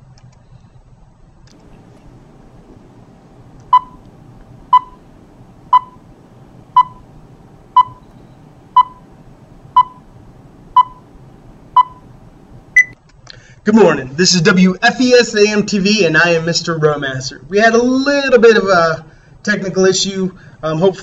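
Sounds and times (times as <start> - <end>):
short countdown beeps: 3.7 - 4.0, 4.7 - 5.0, 5.7 - 6.0, 6.8 - 7.0, 7.8 - 9.0, 9.8 - 10.0, 10.8 - 11.0, 11.8 - 12.0, 12.8 - 13.0.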